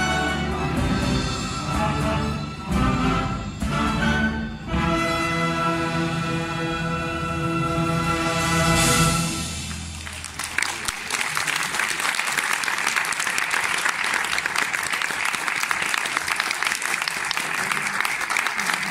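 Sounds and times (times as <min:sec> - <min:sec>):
audience applause: 0:09.7 - 0:18.9.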